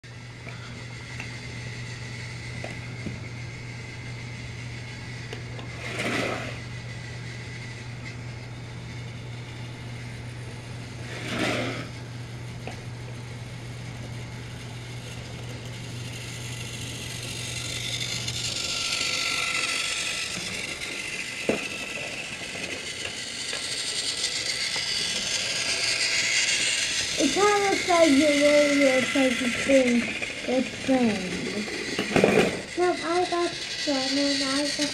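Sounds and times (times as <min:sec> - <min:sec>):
toy train motor whirring: 0:00.2 - 0:34.9.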